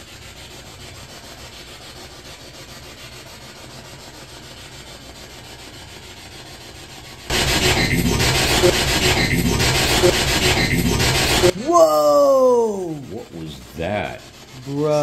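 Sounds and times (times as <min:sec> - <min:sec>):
radio static sweeping stations: 0:07.3 - 0:11.6.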